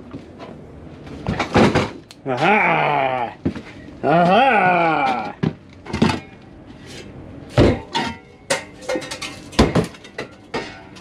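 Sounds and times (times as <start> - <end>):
steel shovels clanking: 5.9 - 11.0.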